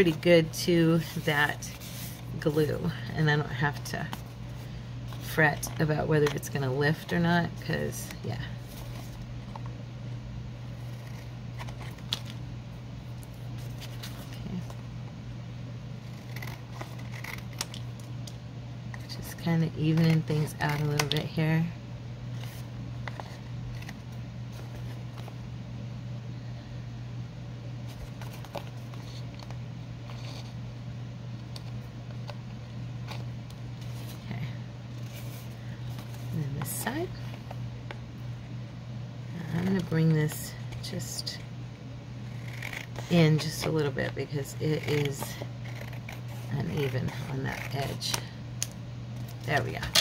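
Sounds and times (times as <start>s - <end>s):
steady low hum: 0.0s - 50.0s
scissors cutting paper: 16.0s - 17.8s, 42.3s - 43.8s, 44.5s - 48.2s.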